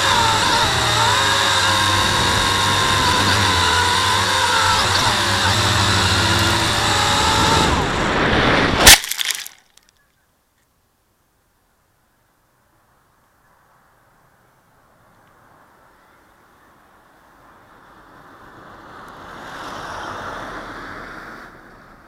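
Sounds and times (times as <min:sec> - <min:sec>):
drone motors whining: 0:00.0 - 0:09.6
crash into branches: 0:08.1 - 0:09.8.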